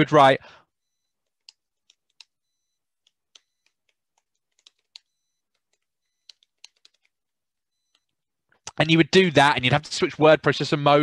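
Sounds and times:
keyboard keystrokes: 0:03.0 - 0:07.1.

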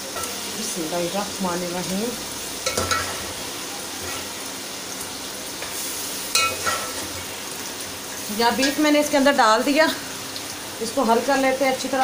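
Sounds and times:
meat sizzling in a pot: 0:00.0 - 0:12.0
spoon knocking on metal pot: 0:02.6 - 0:03.1.

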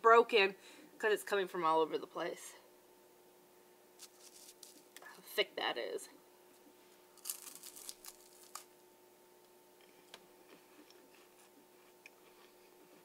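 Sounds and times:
faint steady hum: 0:00.0 - 0:13.0
crunchy wafer being chewed: 0:07.2 - 0:08.7.

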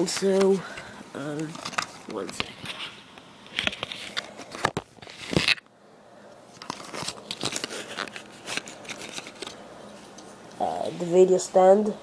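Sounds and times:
packaging crinkling: 0:06.6 - 0:09.6.

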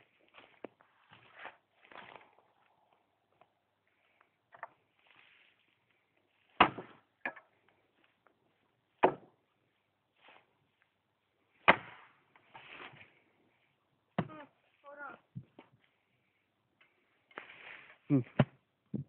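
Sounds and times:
axe chopping tree trunk: 0:06.5 - 0:07.5, 0:09.0 - 0:09.4, 0:11.6 - 0:12.9, 0:18.4 - 0:19.0.

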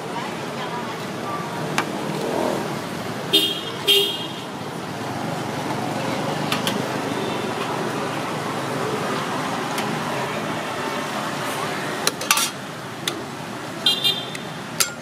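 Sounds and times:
street traffic noise: 0:00.0 - 0:15.0
vehicle horn honking: 0:03.3 - 0:04.5, 0:13.9 - 0:14.4.

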